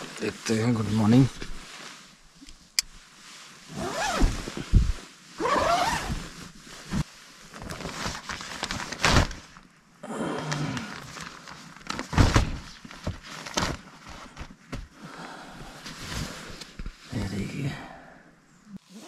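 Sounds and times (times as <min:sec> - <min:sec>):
zipper being pulled: 0:03.7 - 0:07.0, 0:18.8 - 0:19.0.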